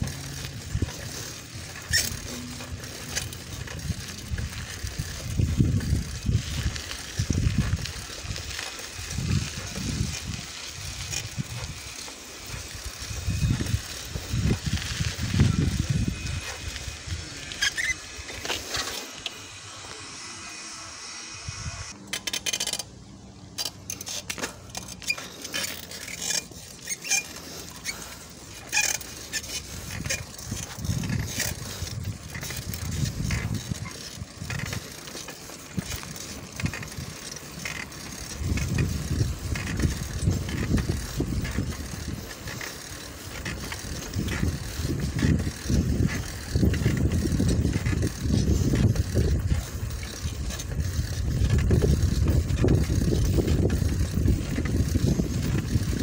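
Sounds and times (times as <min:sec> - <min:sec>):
wind buffeting microphone: 0:00.0 - 0:18.2, 0:29.5 - 0:56.0
bicycle clicks and rattles: 0:00.0 - 0:20.2, 0:21.9 - 0:56.0.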